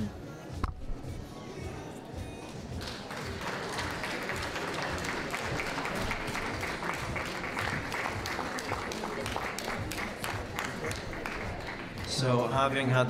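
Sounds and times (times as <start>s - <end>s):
audience applauding: 2.8s - 12.4s.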